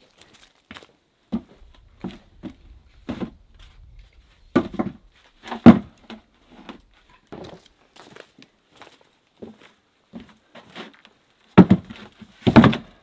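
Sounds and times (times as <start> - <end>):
footsteps on plank floor: 0.7 - 10.9
firewood knocking on pile: 4.5 - 6.2, 11.6 - 13.0.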